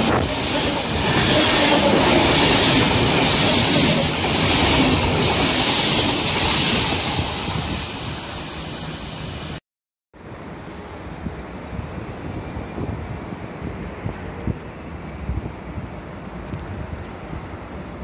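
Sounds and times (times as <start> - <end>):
wind on microphone: 0.0 - 8.3, 11.1 - 18.0
train coaches rushing past: 0.0 - 9.6.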